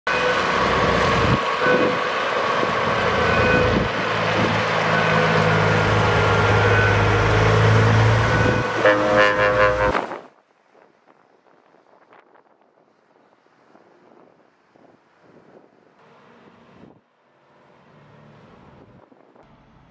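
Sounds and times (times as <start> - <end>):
diesel truck engine driving past: 0.1 - 10.0, 15.3 - 19.9
truck horn blast: 0.1 - 10.3.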